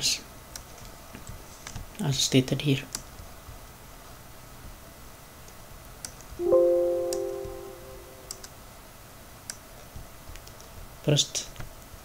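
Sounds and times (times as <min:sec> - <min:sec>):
soft mouse clicks: 0:02.9 - 0:03.1
computer system chime: 0:06.4 - 0:08.4.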